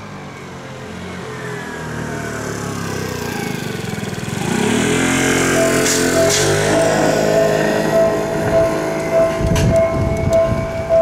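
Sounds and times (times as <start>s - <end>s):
electric train motors whining: 3.1s - 11.0s
steady high tone: 4.6s - 11.0s.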